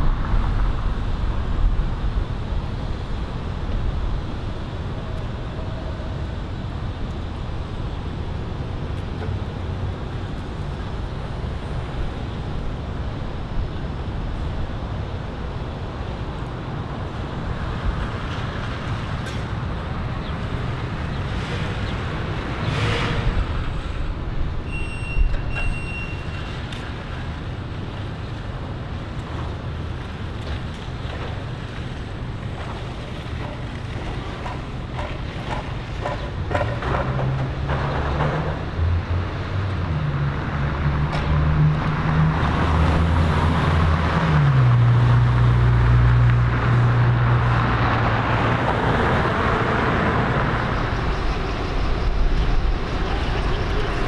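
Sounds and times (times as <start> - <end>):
low rumble of traffic: 0.0 - 54.0
car driving past: 21.2 - 24.0
short electronic beep: 24.7 - 26.5.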